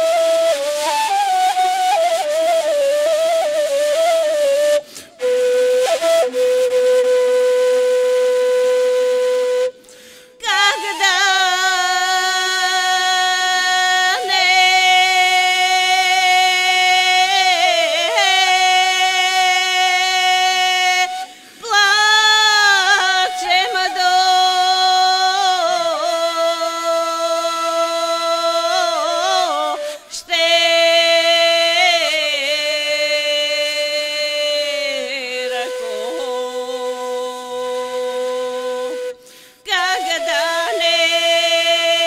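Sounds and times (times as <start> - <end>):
flute-like wind instrument melody: 0.0 - 10.0, 14.1 - 21.4, 22.8 - 26.9, 34.4 - 41.9.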